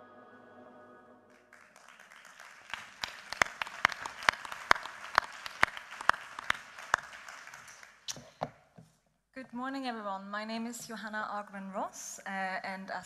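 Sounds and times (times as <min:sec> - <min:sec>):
title music: 0:00.0 - 0:01.7
audience applauding: 0:01.3 - 0:08.1.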